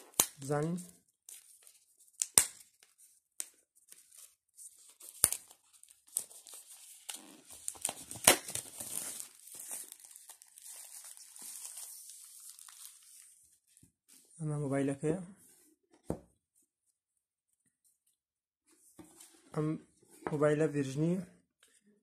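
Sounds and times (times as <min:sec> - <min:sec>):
plastic crinkling: 0:05.0 - 0:13.3
plastic wrap tearing: 0:05.1 - 0:13.2.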